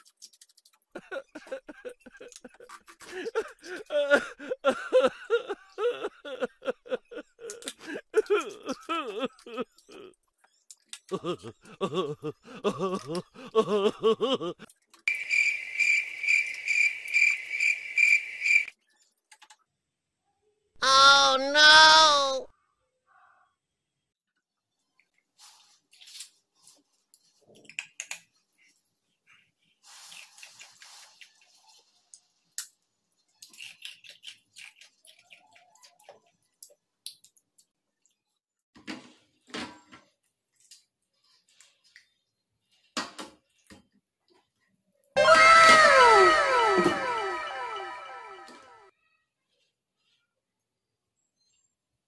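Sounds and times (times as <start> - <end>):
cricket chirping: 15.1 - 18.7
woman making wavering sounds: 20.8 - 22.5, 45.2 - 48.7.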